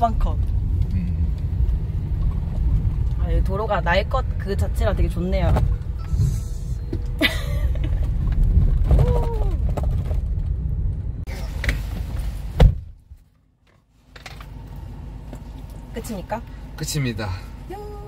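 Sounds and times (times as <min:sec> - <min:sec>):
low road rumble in van: 0:00.0 - 0:18.0
sharp thump: 0:12.6 - 0:13.2.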